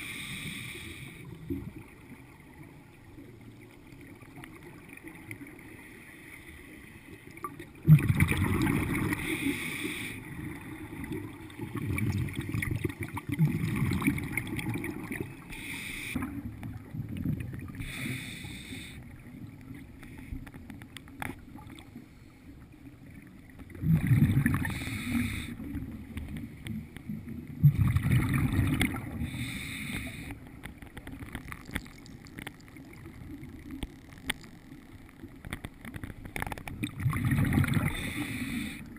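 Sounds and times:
hissing regulator breaths: 0.0s - 1.3s, 9.2s - 10.3s, 15.5s - 16.2s, 17.8s - 19.0s, 24.6s - 25.7s, 29.2s - 30.4s, 37.9s - 38.9s
bubbling exhale underwater: 7.5s - 9.4s, 10.4s - 15.4s, 23.7s - 25.9s, 27.6s - 30.3s, 36.8s - 38.8s.

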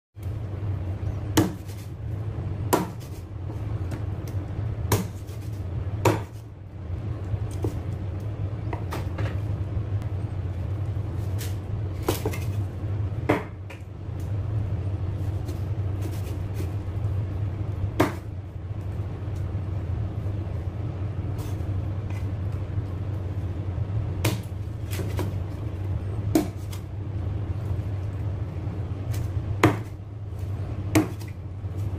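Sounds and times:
steady low hum: 0.2s - 31.9s
cleaver chopping on wooden board: 1.4s - 1.8s, 2.7s - 3.2s, 6.0s - 6.4s, 13.3s - 13.7s, 18.0s - 18.2s, 29.6s - 29.9s, 30.9s - 31.3s.

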